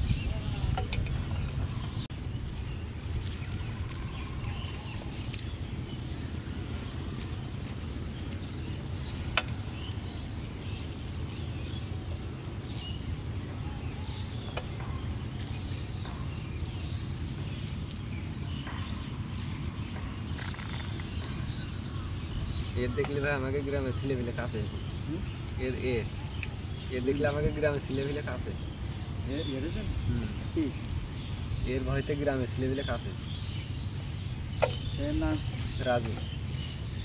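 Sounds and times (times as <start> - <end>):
low rumble: 0.0 - 22.8
high insect whine: 0.0 - 26.0, 26.6 - 35.7
bird chirping: 0.0 - 37.0.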